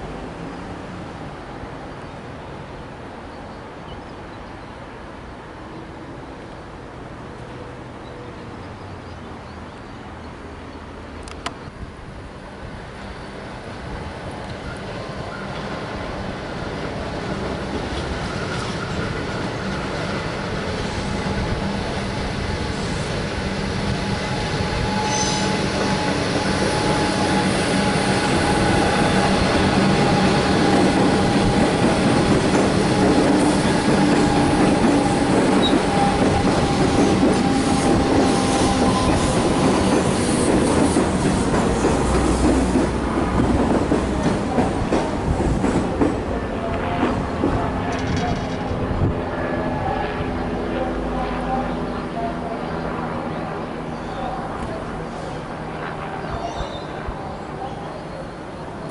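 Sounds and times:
electric train rolling rumble: 0:10.3 - 0:58.9
wheel squeal: 0:24.3 - 0:27.4.

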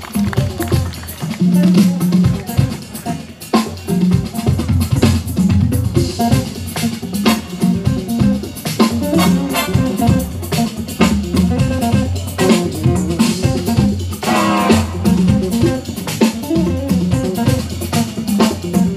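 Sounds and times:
drum kit: 0:00.0 - 0:18.9
electric guitar: 0:00.0 - 0:18.9
bass notes: 0:03.8 - 0:18.9.

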